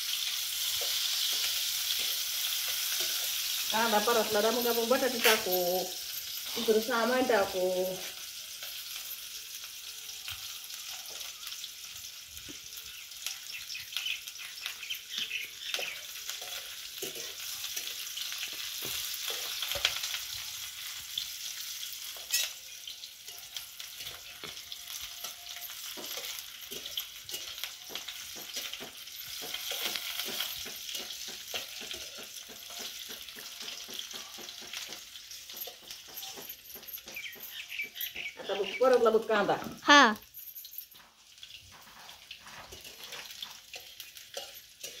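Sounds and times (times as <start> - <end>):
onions sizzling in oil: 0.0 - 45.0
spoon scraping and tapping pan: 0.4 - 6.8, 14.6 - 38.8, 41.0 - 45.0.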